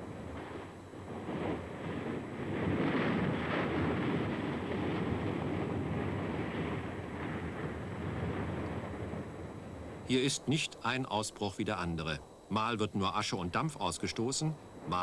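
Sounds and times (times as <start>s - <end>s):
volcano erupting with rushing noise: 0.0s - 10.6s
wind on microphone: 0.0s - 10.6s, 12.9s - 15.0s.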